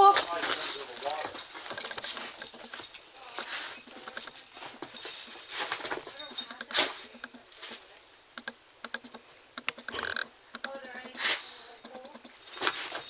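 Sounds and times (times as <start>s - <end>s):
dog sniffing and snuffling: 0.2s - 8.1s, 11.1s - 13.0s.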